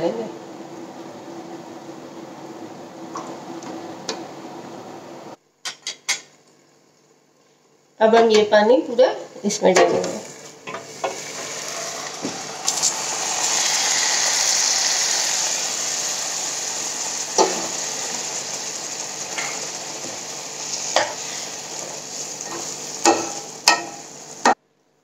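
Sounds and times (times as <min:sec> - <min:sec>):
water sizzling in hot pan: 0:10.0 - 0:24.6
spatula knocking on pan: 0:23.0 - 0:24.0.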